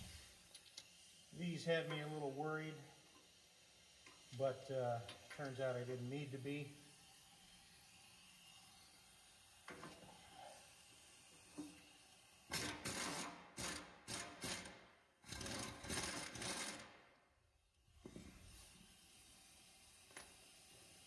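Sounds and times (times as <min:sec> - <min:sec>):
impact driver rattling: 0:12.5 - 0:17.0.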